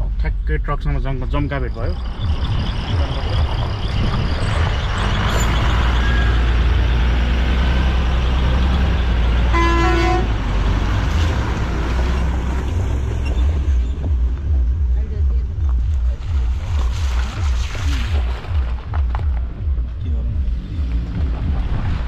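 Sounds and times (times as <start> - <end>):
engine and road rumble: 0.0 - 22.0
vehicle horn toot: 9.5 - 10.3.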